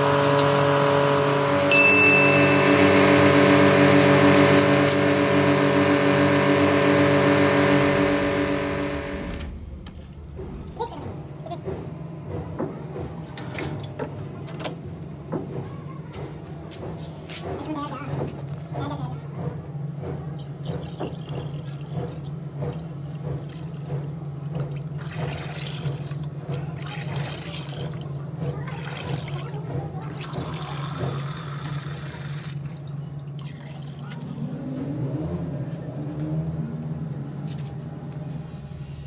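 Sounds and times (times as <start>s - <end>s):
water pouring into plastic drum: 20.4s - 34.6s.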